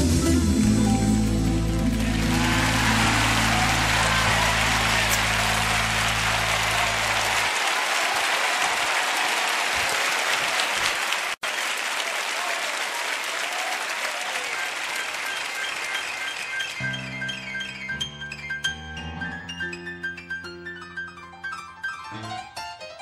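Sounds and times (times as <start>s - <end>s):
live music low notes: 0.0s - 7.4s
audience applauding: 1.7s - 18.2s.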